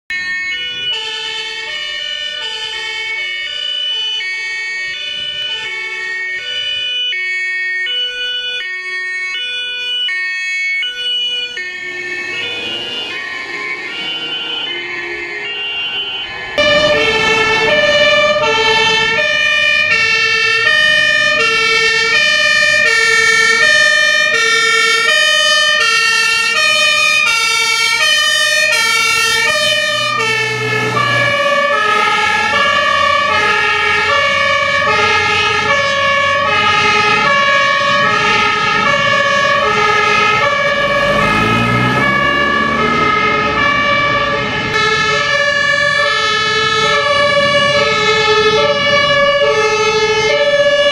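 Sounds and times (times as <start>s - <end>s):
fire engine two-tone siren: 0.1s - 50.9s
truck engine revving: 10.8s - 50.9s.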